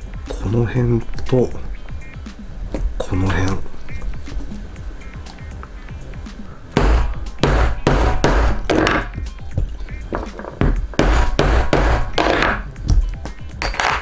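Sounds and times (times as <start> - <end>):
mallet striking leather punch: 6.8 - 9.2, 10.6 - 12.7.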